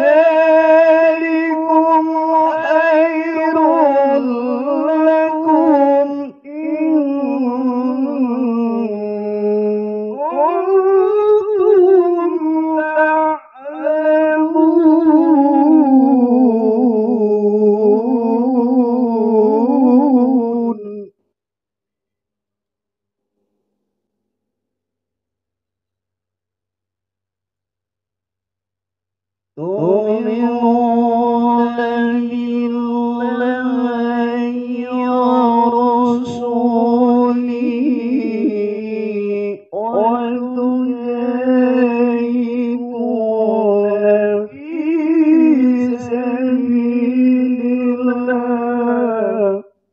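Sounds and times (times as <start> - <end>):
man reciting melodically: 0.0 - 21.1, 29.6 - 49.7.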